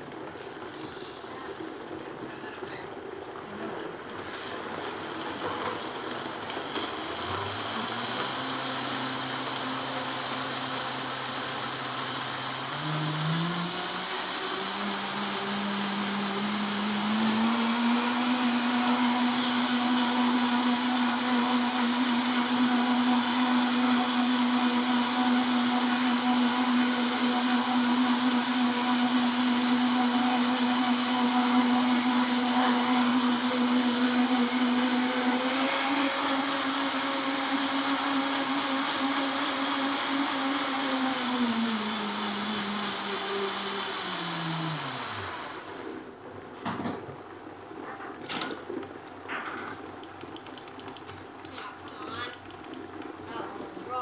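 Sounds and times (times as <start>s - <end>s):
blender motor running: 5.8s - 46.1s.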